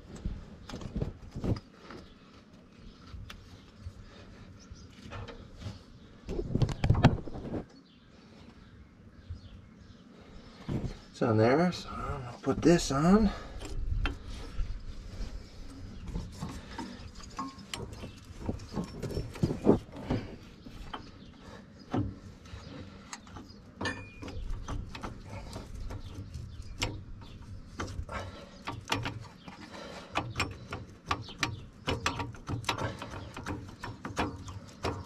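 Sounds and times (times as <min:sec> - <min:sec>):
metal parts clicking and knocking: 0:23.1 - 0:35.0.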